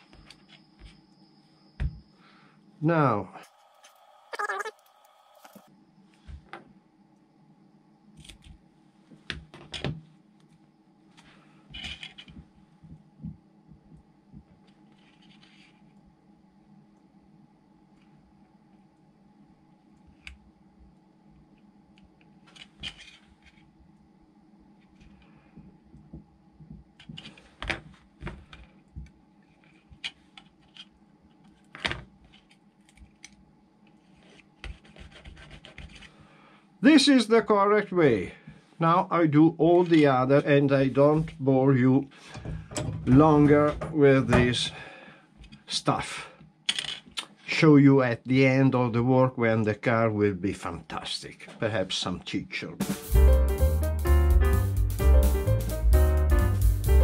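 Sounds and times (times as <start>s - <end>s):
tool rubbing decal on plastic: 34.6s - 36.0s.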